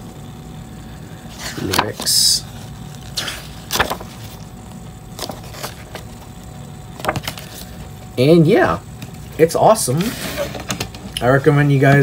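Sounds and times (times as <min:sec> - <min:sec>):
paper pages rustling: 0:01.4 - 0:04.5, 0:05.1 - 0:06.3, 0:07.0 - 0:07.9.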